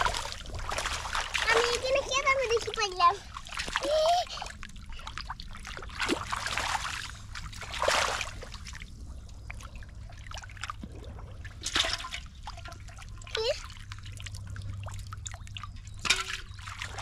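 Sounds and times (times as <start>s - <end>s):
water splashing in a pond: 0.0s - 17.0s.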